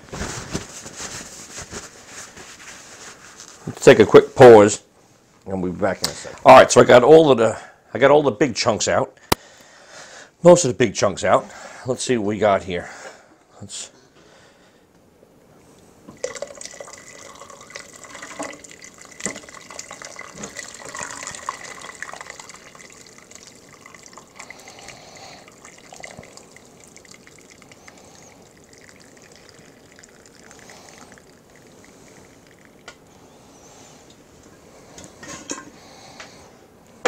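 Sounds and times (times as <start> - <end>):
stock pouring through strainer: 16.2 - 32.9.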